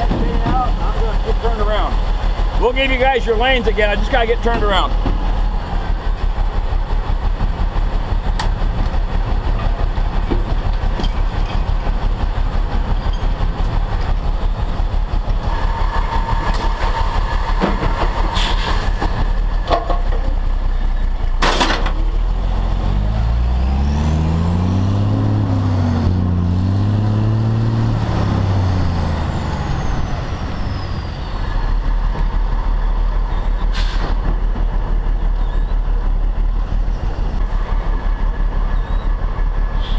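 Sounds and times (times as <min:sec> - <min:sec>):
diesel engine running: 0:00.0 - 0:39.9
air hiss: 0:18.4 - 0:19.0.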